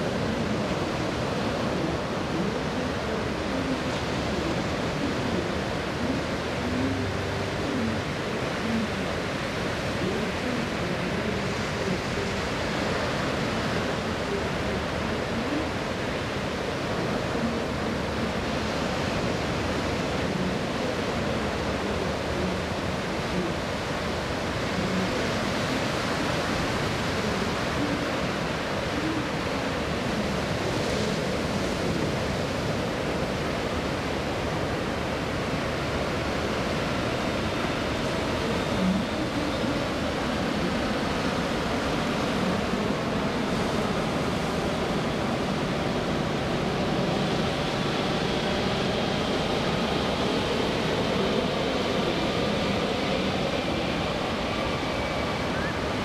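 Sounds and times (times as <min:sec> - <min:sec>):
jet engines roaring overhead: 0:13.3 - 0:56.0.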